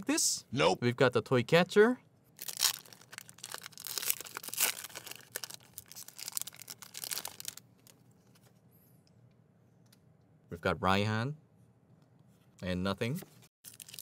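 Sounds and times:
foil pack tearing and crinkling: 0:02.4 - 0:07.6, 0:13.7 - 0:14.0.

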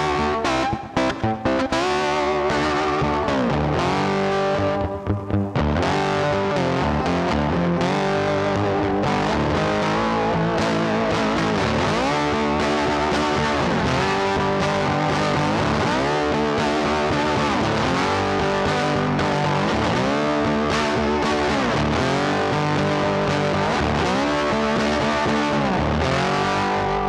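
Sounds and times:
distorted electric guitar music: 0:00.0 - 0:27.0.

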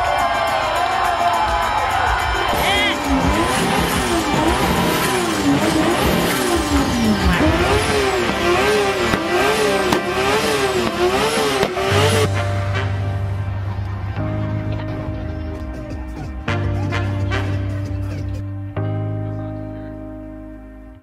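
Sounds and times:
music: 0:00.0 - 0:21.0
car engine revving: 0:02.2 - 0:18.6.

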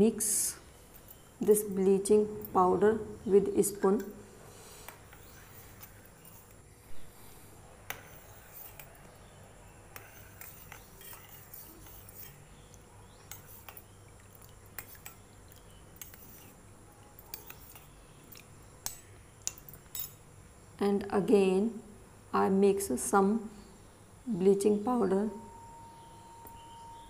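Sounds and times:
metal spoon clinking in steel bowl: 0:10.0 - 0:12.4, 0:18.8 - 0:20.2.

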